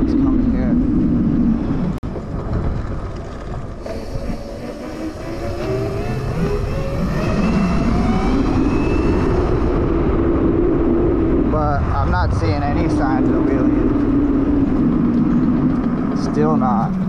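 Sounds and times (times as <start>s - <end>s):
wind buffeting microphone: 0.0s - 17.0s
electric motor whining: 3.8s - 10.2s.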